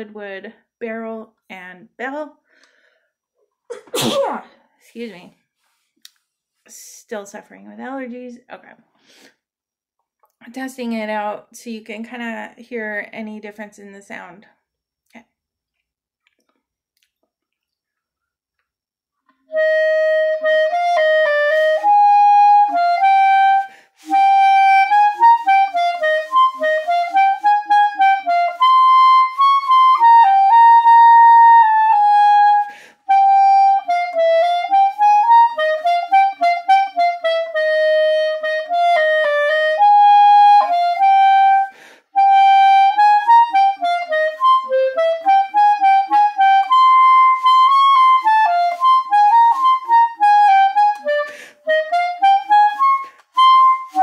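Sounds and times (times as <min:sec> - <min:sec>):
clarinet playing melody: 0:19.4 - 0:54.0.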